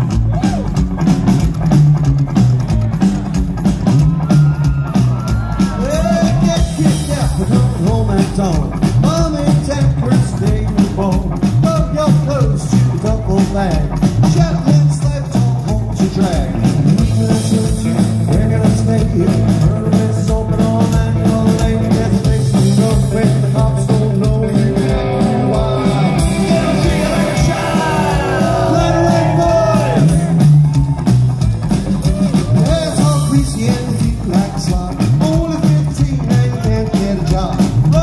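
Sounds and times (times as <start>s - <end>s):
drums: 0.0s - 38.0s
electric guitar: 0.0s - 38.0s
upright bass: 0.0s - 38.0s
person singing: 5.7s - 30.4s.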